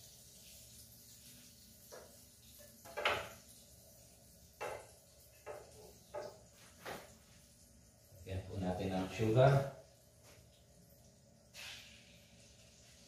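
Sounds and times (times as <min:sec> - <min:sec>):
wooden spatula knocking on frying pan: 0:02.8 - 0:03.4, 0:04.6 - 0:06.4.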